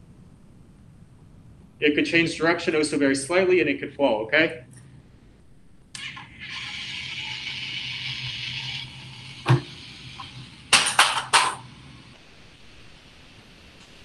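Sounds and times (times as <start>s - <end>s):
toy car motor whirring: 6.0s - 9.2s.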